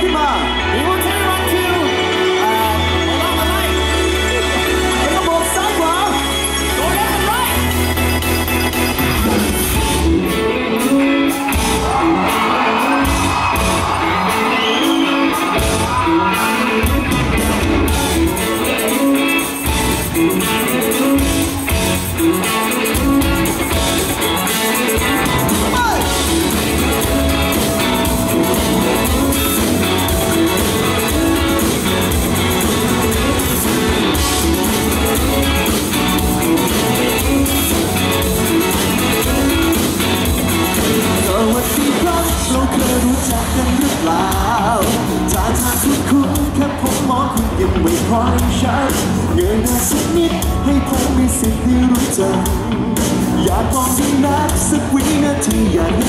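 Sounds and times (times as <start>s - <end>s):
live band with electric guitar: 0.0s - 56.0s
crowd cheering: 10.3s - 47.7s.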